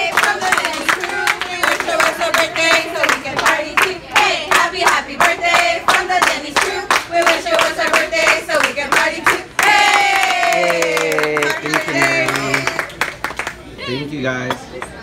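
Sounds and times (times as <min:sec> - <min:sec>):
group singing together: 0:00.0 - 0:10.6
people clapping in rhythm: 0:00.0 - 0:13.7.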